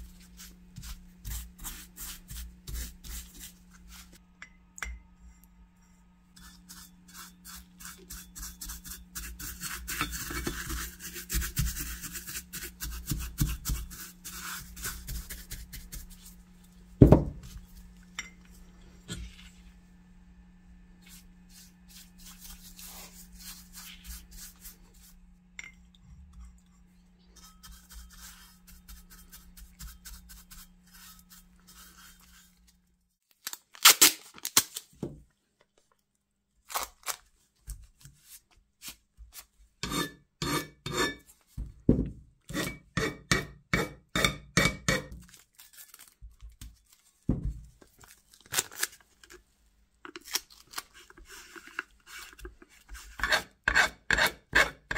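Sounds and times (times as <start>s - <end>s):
bristle brush scrubbing metal: 0.0s - 4.2s, 6.3s - 16.4s, 21.0s - 25.2s, 27.2s - 32.8s, 51.0s - 54.9s
low steady hum: 0.0s - 33.1s
masking tape ripping: 33.4s - 34.9s.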